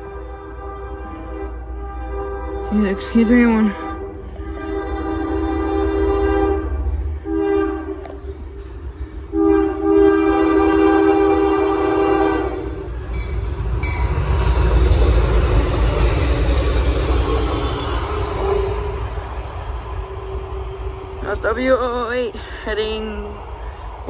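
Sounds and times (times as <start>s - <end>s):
locomotive air horn blasts: 0.0s - 8.3s, 9.2s - 12.9s, 18.3s - 19.3s
train passing with wheel noise: 0.0s - 24.0s.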